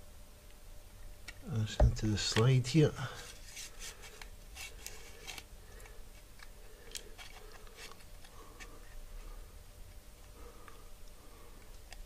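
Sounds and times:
faint plastic clicks and crackles: 4.0s - 9.0s, 9.8s - 12.0s.

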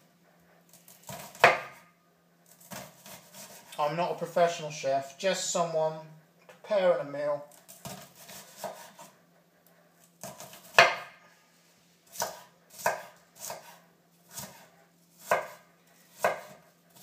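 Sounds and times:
knife chopping onion on board: 0.8s - 1.8s, 2.5s - 3.7s, 7.6s - 9.2s, 10.2s - 11.2s, 12.1s - 17.0s.

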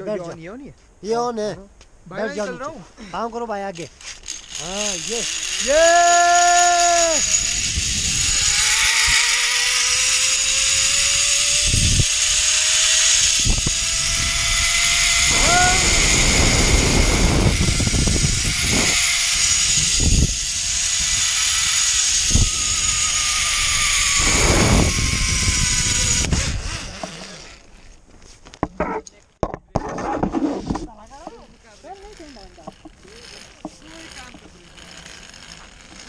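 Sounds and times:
zipline pulley whining on cable: 3.7s - 28.0s, 31.2s - 36.0s
wind buffeting microphone: 7.4s - 9.4s, 11.6s - 12.2s, 13.4s - 21.3s, 22.2s - 27.0s.

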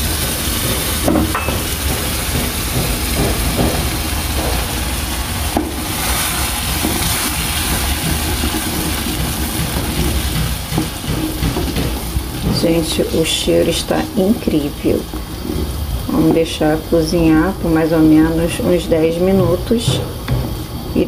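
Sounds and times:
hot fat sizzling in a saucepan: 0.0s - 21.0s
wooden spoon stirring: 5.7s - 16.4s.

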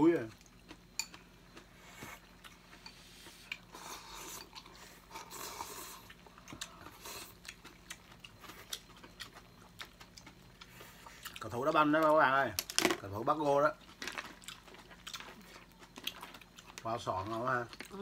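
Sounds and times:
chewing: 0.2s - 11.6s, 13.7s - 18.0s
people slurping noodles: 3.0s - 6.2s.

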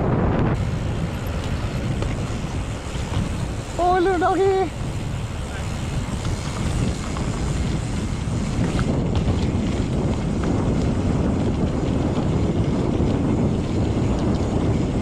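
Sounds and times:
bike tyres rolling on gravel: 0.0s - 15.0s
wind buffeting microphone: 0.0s - 15.0s.

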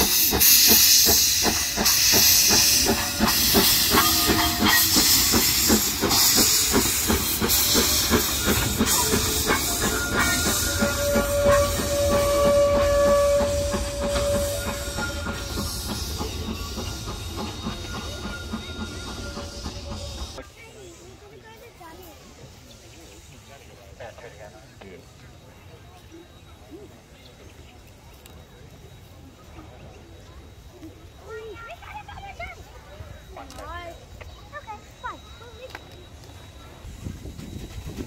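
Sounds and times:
steady squeal: 0.0s - 20.4s
steam locomotive hissing steam: 0.0s - 38.0s.

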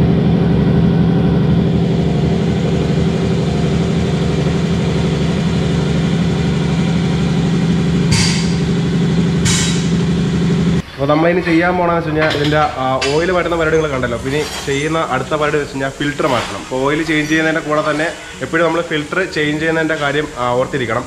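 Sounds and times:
machine humming: 0.0s - 14.4s.

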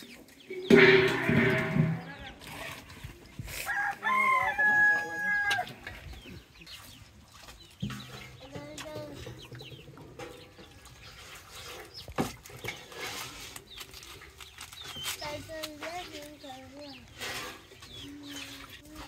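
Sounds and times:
chickens clucking: 0.0s - 19.0s
rooster crowing: 3.7s - 5.7s.

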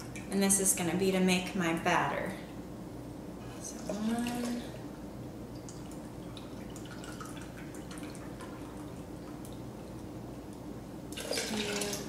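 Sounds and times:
liquid trickling into blender jar: 11.2s - 12.0s.

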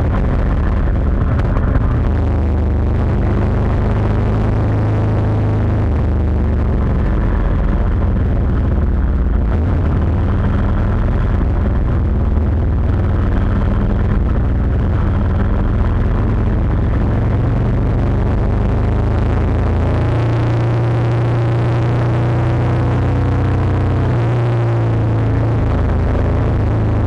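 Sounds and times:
motorcycle engine running: 0.0s - 27.0s
wind noise on microphone: 0.0s - 27.0s.

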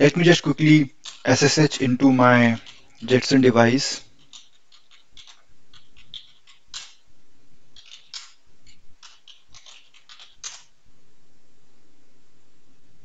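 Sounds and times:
keyboard keys clicking: 1.0s - 7.0s, 7.8s - 10.6s.

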